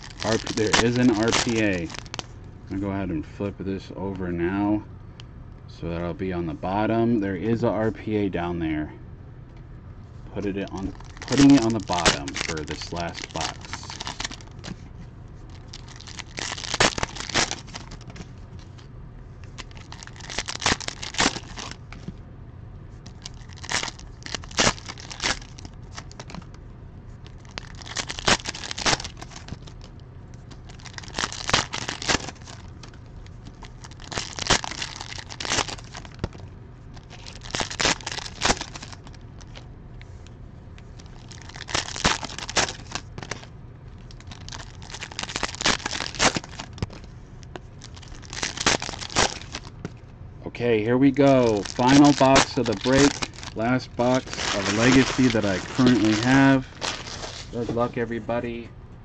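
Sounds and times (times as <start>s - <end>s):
plastic wrappers crinkling and tearing: 0.0s - 2.3s, 10.6s - 14.7s, 15.4s - 18.8s, 19.5s - 22.0s, 23.1s - 26.5s, 27.2s - 39.6s, 40.8s - 49.8s, 51.2s - 57.6s.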